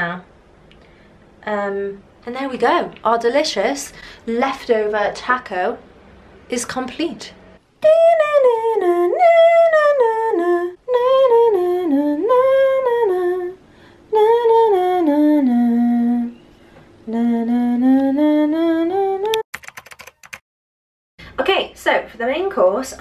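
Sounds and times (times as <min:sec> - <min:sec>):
person singing wordless tune: 0:07.8 - 0:16.4, 0:17.0 - 0:19.4.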